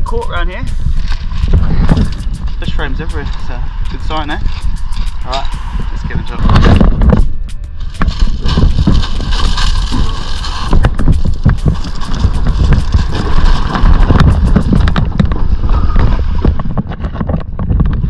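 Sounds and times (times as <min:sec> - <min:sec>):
wind buffeting microphone: 0:00.0 - 0:18.0
footsteps crunching on gravel: 0:00.1 - 0:15.4
kayak hull scraping on stones: 0:07.9 - 0:17.6.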